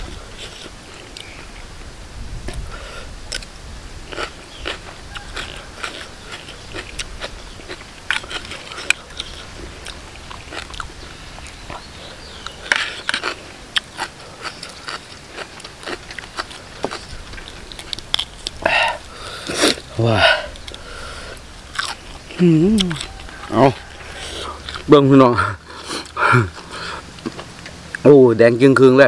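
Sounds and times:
crunchy bites and wet chewing: 0:03.3 - 0:03.5, 0:04.1 - 0:24.9.

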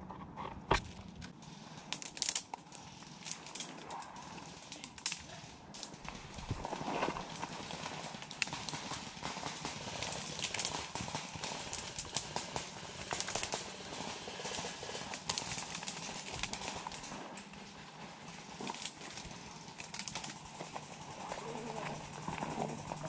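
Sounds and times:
undergrowth rustling: 0:14.5 - 0:23.0.

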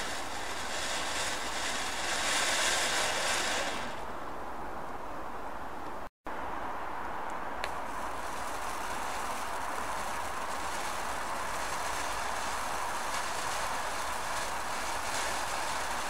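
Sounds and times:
firework fountain hissing: 0:00.0 - 0:04.9, 0:07.6 - 0:16.0
faint crackles: 0:00.0 - 0:05.0, 0:07.3 - 0:16.0.

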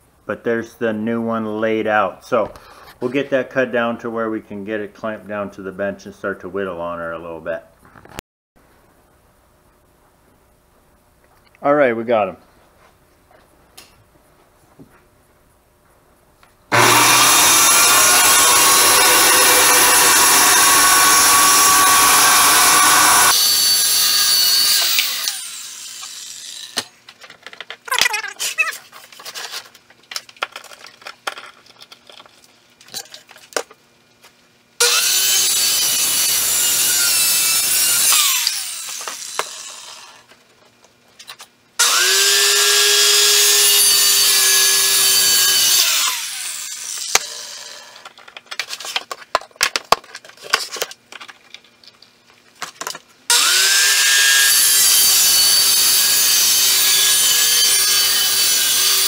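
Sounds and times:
circular saw cutting wood: 0:16.7 - 0:26.9, 0:34.8 - 0:40.3, 0:41.8 - 0:48.0, 0:53.3 - 0:59.0.

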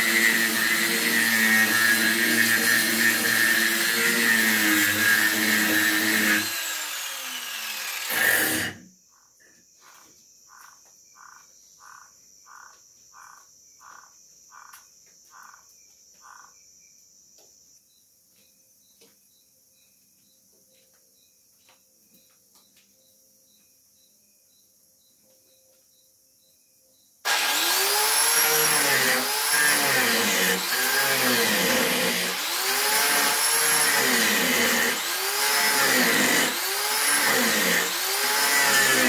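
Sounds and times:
angle grinder sanding wood: 0:00.0 - 0:08.8, 0:27.3 - 0:39.0
high insect trill: 0:09.0 - 0:17.0.

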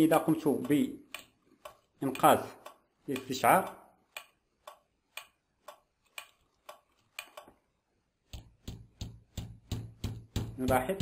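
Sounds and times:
finger tapping on tabletop: 0:08.3 - 0:11.0.

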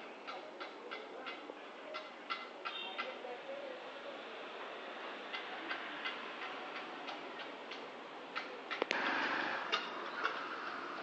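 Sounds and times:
woodpecker hammering on wood: 0:00.2 - 0:01.4.

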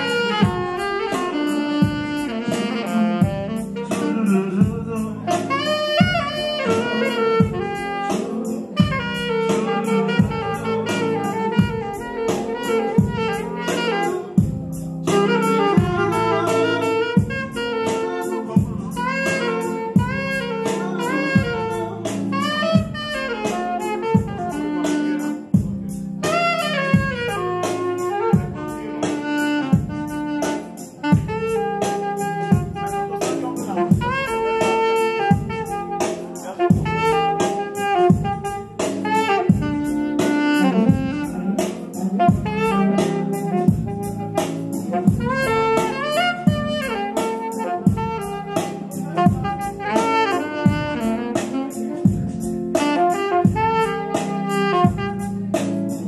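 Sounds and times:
drum kit beat: 0:00.0 - 0:56.0
saxophone playing jazz runs: 0:00.0 - 0:56.0.

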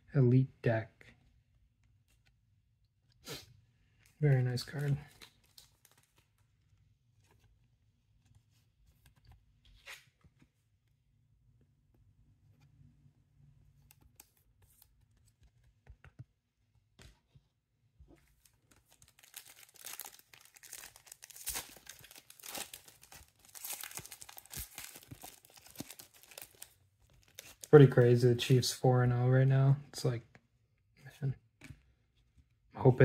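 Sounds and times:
foil pack tearing and crinkling: 0:19.0 - 0:27.7.

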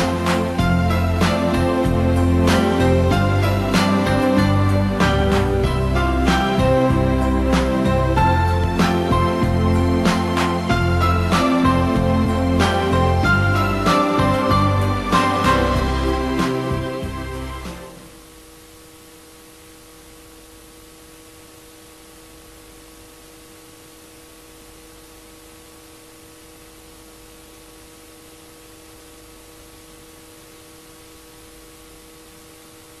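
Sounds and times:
steady hiss: 0:00.0 - 0:33.0
faint hum of held tones: 0:17.1 - 0:33.0.

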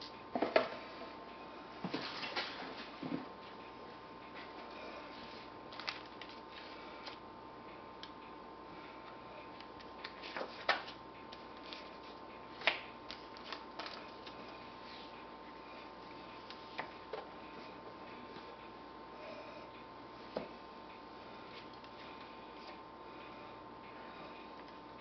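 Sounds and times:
paper rustling: 0:05.7 - 0:07.2.

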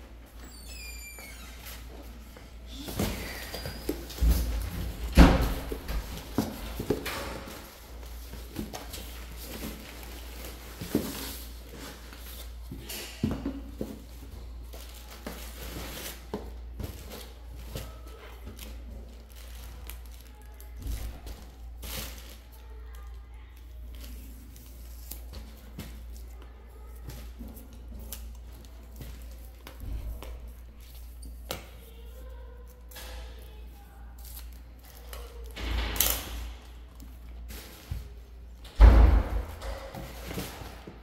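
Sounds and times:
plastic packaging rustling: 0:02.8 - 0:12.6, 0:13.7 - 0:35.6
boxes knocking and rustling: 0:02.8 - 0:19.7, 0:38.8 - 0:41.0.

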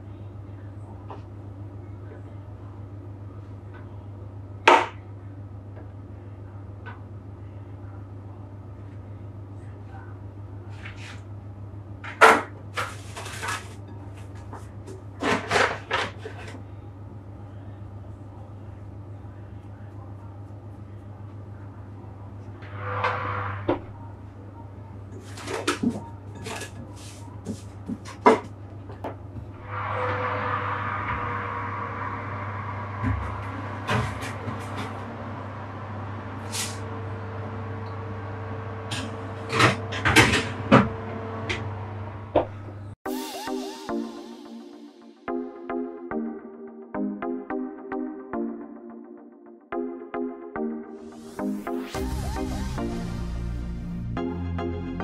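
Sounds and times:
steady low hum: 0:13.2 - 0:43.0
low hum: 0:29.1 - 0:49.3, 0:50.6 - 0:55.0.

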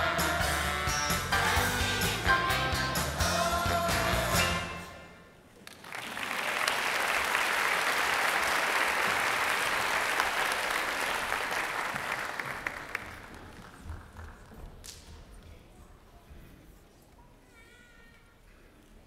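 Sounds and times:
music: 0:00.0 - 0:05.2
audience applauding: 0:05.6 - 0:14.6.

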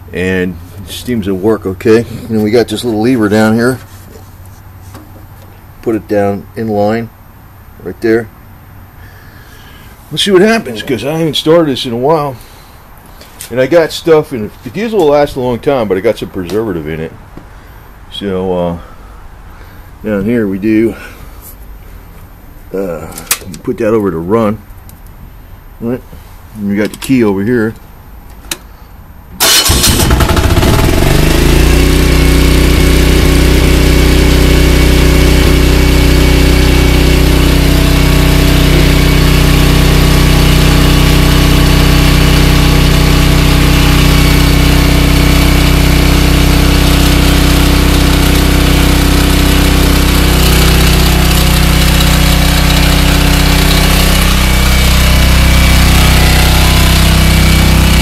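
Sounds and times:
diesel generator cranking and running: 0:26.2 - 0:58.0.

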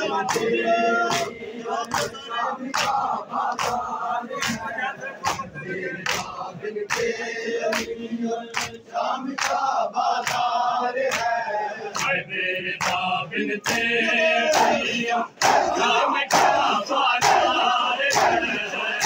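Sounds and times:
men chanting in unison: 0:00.0 - 0:19.0
chest-beating slaps: 0:01.1 - 0:02.2.

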